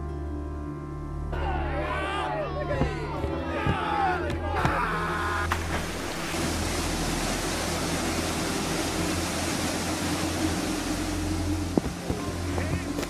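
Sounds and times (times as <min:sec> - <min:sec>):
low hum: 0:05.2 - 0:13.0.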